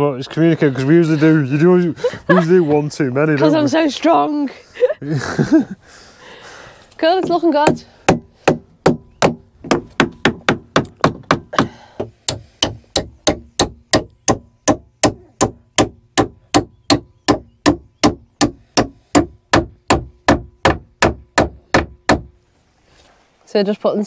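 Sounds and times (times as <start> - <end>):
hammer driving nails into wood: 7.7 - 22.4.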